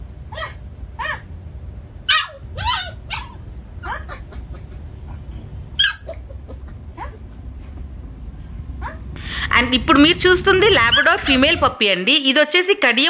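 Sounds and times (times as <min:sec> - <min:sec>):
puppy yipping: 0:00.3 - 0:01.3, 0:02.1 - 0:04.3, 0:05.8 - 0:07.3.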